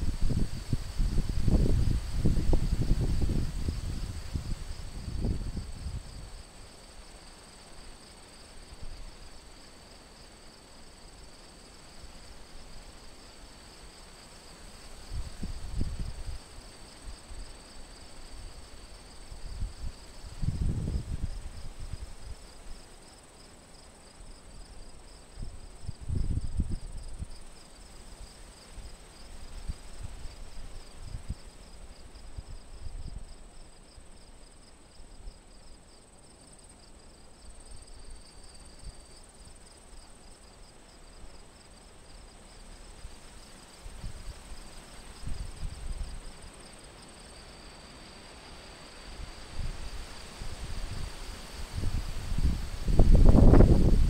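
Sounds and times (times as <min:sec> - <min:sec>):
wind buffeting microphone: 0:00.0 - 0:06.2, 0:51.7 - 0:54.0
thin steady insect whine: 0:00.0 - 0:54.0
insect chorus trilling: 0:36.2 - 0:54.0.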